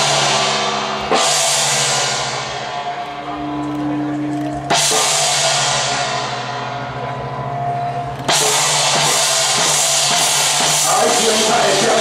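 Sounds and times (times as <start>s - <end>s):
gong and cymbal crashes: 0.0s - 2.9s, 4.7s - 7.5s, 8.3s - 12.0s.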